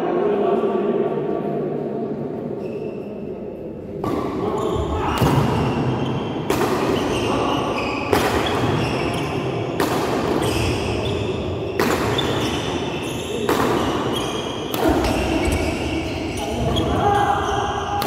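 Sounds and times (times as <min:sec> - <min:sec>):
racquet hitting shuttlecock: 0:08.1 - 0:08.8, 0:09.7 - 0:10.6, 0:11.8 - 0:15.6.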